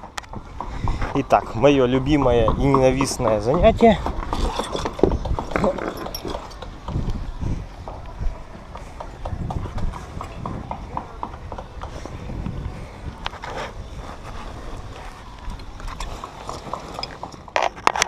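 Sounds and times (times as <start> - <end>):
climbing gear knocking and clicking: 0.0 - 7.2.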